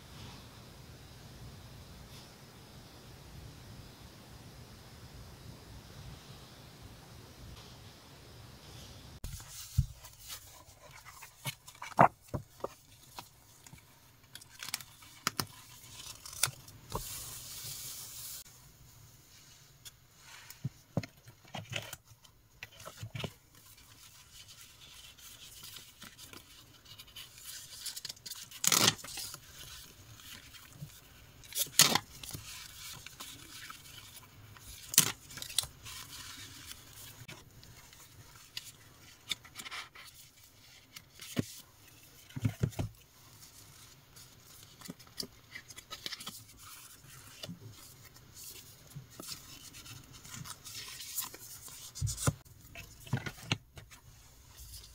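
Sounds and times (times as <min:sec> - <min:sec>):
paper scraping and rubbing: 0:09.2 - 0:13.8.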